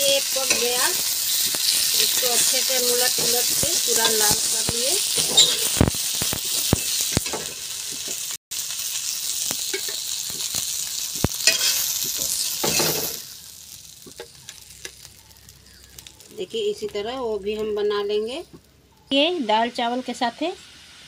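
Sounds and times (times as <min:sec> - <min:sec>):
fish sizzling in oil: 0:00.0 - 0:18.2, 0:19.9 - 0:21.0
steel spatula scraping pan: 0:05.1 - 0:05.8, 0:11.5 - 0:13.2.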